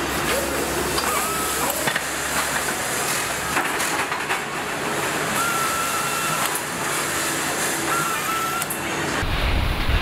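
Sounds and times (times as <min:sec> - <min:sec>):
factory hiss and clatter: 0:00.0 - 0:10.0
power nutrunner whining: 0:05.3 - 0:06.8, 0:07.8 - 0:08.9.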